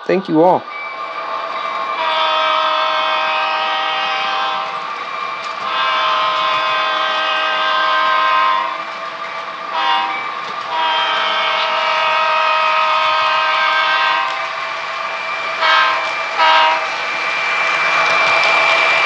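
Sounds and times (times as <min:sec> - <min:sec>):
diesel locomotive horn blasts: 0:02.0 - 0:04.8, 0:05.6 - 0:08.8, 0:09.7 - 0:14.6, 0:15.2 - 0:17.0.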